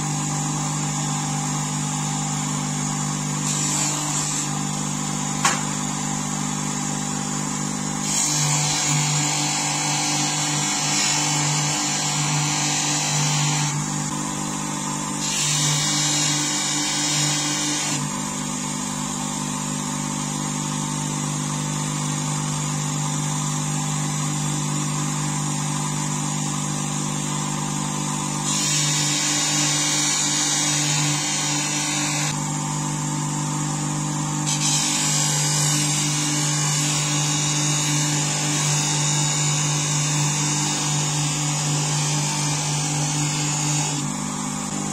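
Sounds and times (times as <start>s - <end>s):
bench grinder motor hum: 0.0s - 44.9s
blade hissing against grinding wheel: 28.5s - 32.4s.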